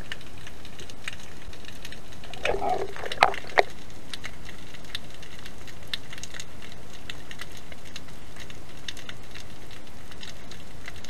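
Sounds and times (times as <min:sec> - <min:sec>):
sharp crackling clicks: 0:00.0 - 0:11.0
low underwater rush: 0:01.0 - 0:05.5.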